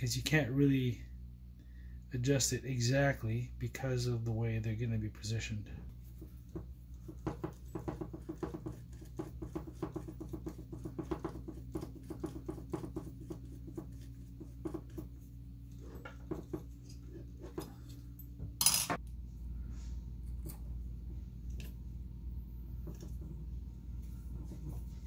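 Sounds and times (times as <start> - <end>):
steady low hum: 0.0 - 25.0
parts clattering: 15.8 - 19.0.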